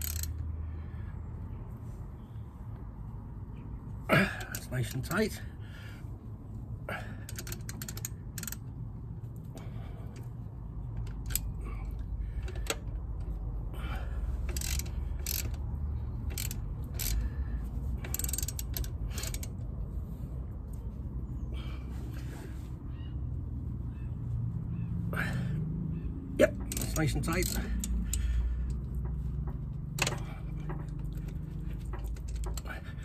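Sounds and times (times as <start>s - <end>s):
hand ratchet clicking: 0.0s - 0.4s, 7.3s - 8.7s, 11.0s - 13.4s, 14.4s - 17.4s, 18.0s - 19.6s, 26.6s - 32.8s
low steady rumble: 0.0s - 33.0s.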